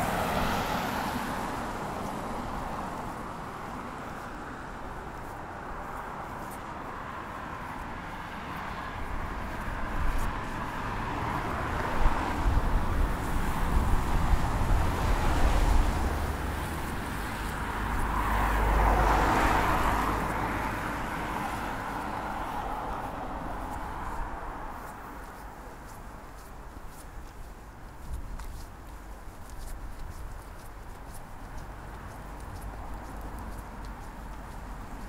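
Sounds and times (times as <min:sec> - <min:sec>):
wind buffeting microphone: 0:09.0 - 0:18.2.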